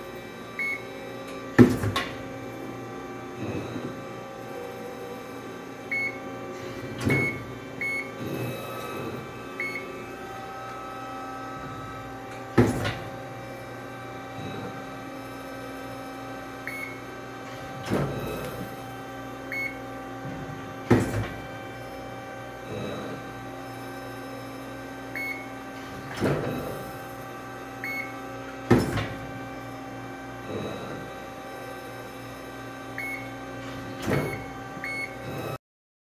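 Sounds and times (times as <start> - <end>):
press brake humming: 5.9 - 13.2
short electronic beeps: 7.1 - 8.1, 34.3 - 35.2.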